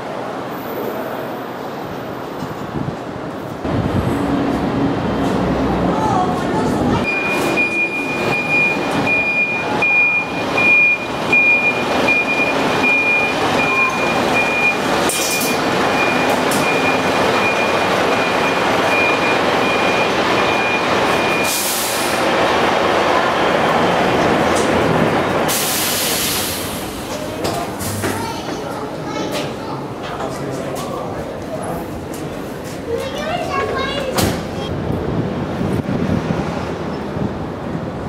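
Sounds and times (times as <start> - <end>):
reversing alarm beeping: 7.0 - 22.2
air brake hiss: 21.4 - 22.2, 25.5 - 27.0.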